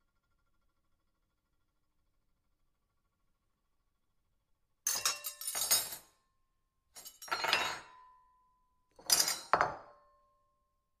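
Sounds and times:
silverware clattering on a plate: 0:04.9 - 0:06.2, 0:07.0 - 0:08.1, 0:09.0 - 0:10.0.

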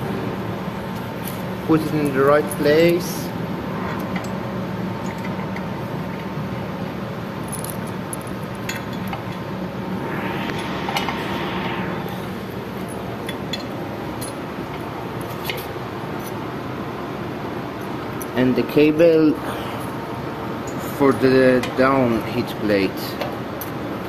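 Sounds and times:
steady background hum: 0:09.5 - 0:13.2
hiss-like swell: 0:09.6 - 0:13.3.

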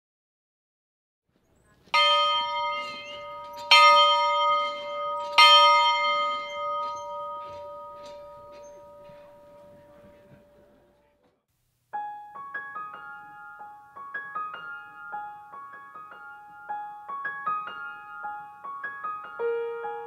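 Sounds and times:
bell ringing: 0:01.9 - 0:10.5.

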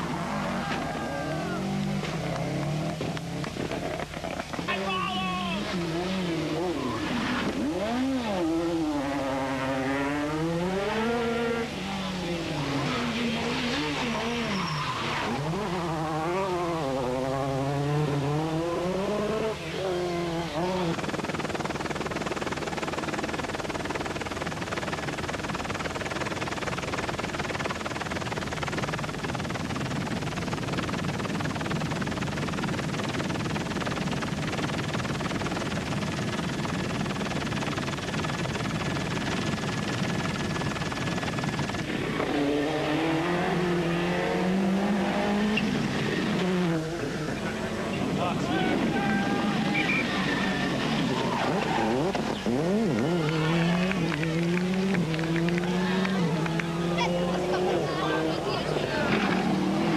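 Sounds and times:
rally car engine revving: 0:00.0 - 0:04.7, 0:05.6 - 0:21.2, 0:41.8 - 0:59.9.

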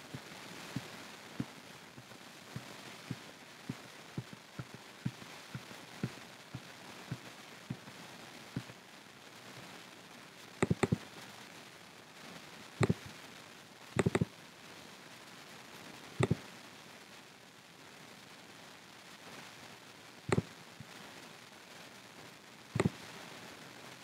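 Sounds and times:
mouse button clicks: 0:10.6 - 0:11.0, 0:14.0 - 0:14.2, 0:22.8 - 0:23.0
mouse knocking on desk: 0:10.6 - 0:11.0, 0:14.0 - 0:14.2.

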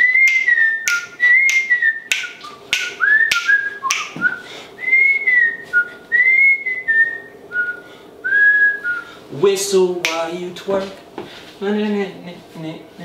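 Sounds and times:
man whistling a bouncy tune: 0:00.0 - 0:09.1
finger snaps: 0:00.1 - 0:04.3, 0:10.0 - 0:10.2.

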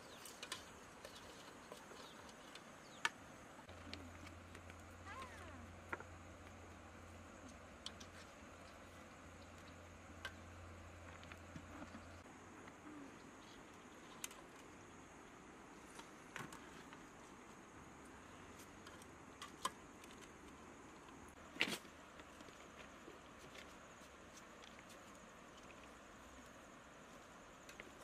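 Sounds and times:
high insect hum: 0:00.0 - 0:28.0.

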